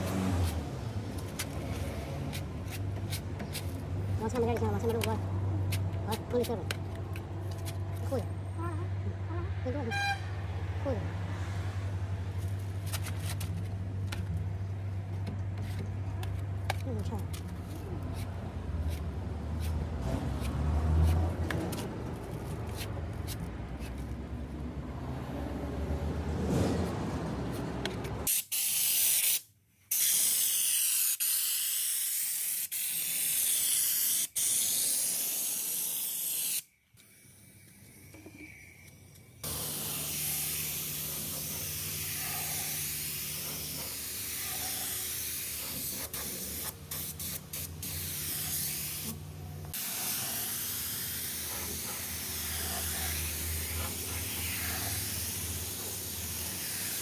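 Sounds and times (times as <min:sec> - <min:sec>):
paint spray gun hissing: 0:28.3 - 0:37.2, 0:39.4 - 0:57.0.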